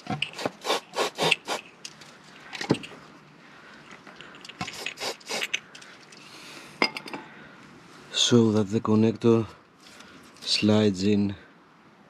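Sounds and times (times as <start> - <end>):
aerosol spray hissing: 0.3 - 1.6, 4.7 - 5.5.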